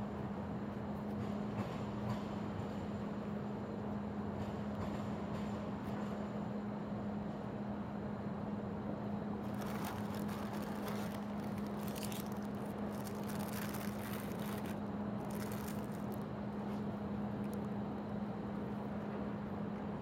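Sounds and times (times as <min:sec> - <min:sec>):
distant city traffic: 0:00.0 - 0:20.0
low constant hum: 0:00.0 - 0:20.0
paper rustling and crinkling: 0:09.4 - 0:16.2.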